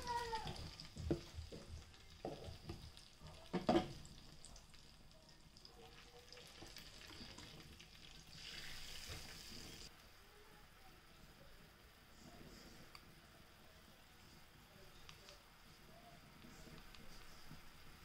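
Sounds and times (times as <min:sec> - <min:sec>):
sauce sizzling in a frying pan: 0:00.0 - 0:09.9.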